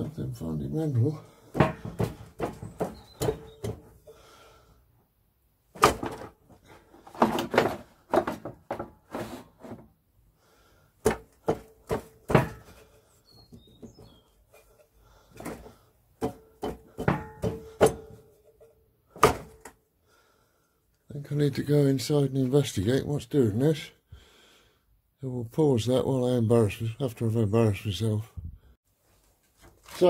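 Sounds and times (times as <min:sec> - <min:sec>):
metallic clunks and knocks: 0:01.5 - 0:04.0, 0:11.0 - 0:12.9, 0:15.4 - 0:19.7.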